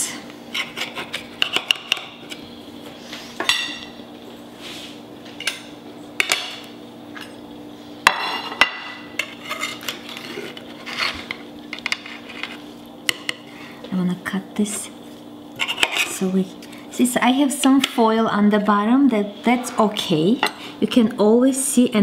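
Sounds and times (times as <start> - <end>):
steady low hum: 0.0 - 22.0
dishes clattering: 3.4 - 3.9, 8.1 - 10.4
cutlery scraping ceramic platter: 8.1 - 12.6, 15.6 - 16.2.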